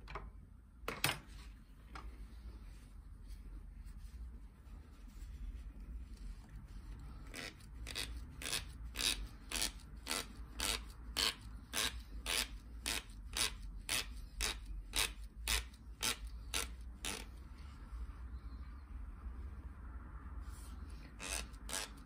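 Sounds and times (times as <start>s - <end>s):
cloth rubbing on cue tip: 2.1s - 18.2s.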